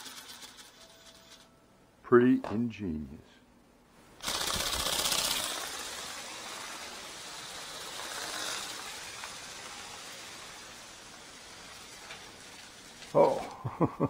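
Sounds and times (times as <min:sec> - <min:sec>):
ornithopter motor and wings buzzing: 0:04.2 - 0:13.5.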